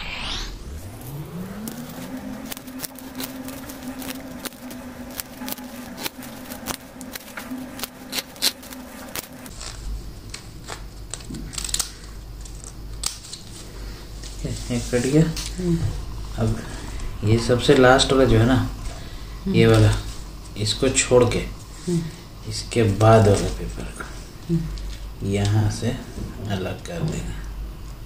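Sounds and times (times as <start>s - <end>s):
steady hum: 0.0s - 28.0s
scissors snipping paper: 1.6s - 13.7s.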